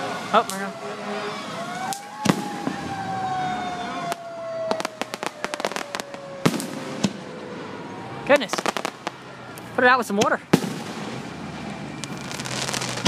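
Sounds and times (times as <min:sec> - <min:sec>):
fire truck siren: 0:00.0 - 0:10.0, 0:11.0 - 0:13.0
fireworks bangs and crackling: 0:01.8 - 0:07.7, 0:08.3 - 0:09.3, 0:10.0 - 0:13.0.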